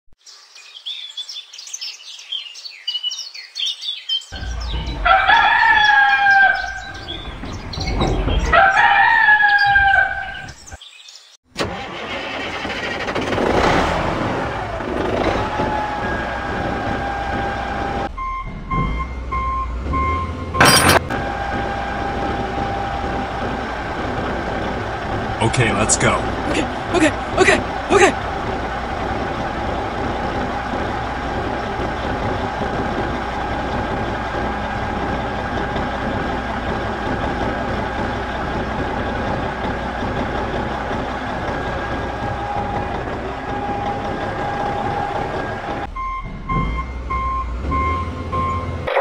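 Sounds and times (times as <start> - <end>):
small birds chirping: 0.2 - 11.4
vehicle engine running: 4.4 - 10.5, 11.6 - 49.0
rooster crowing: 4.8 - 7.2, 8.5 - 10.5.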